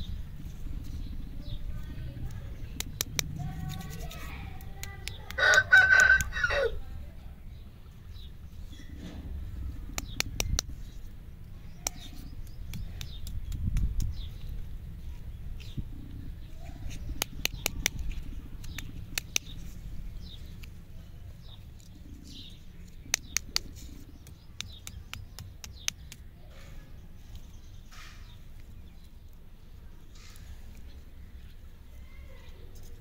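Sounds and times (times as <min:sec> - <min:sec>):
faint birds chirping: 0:00.0 - 0:33.0
wrapped lollipops clicking: 0:22.9 - 0:26.3.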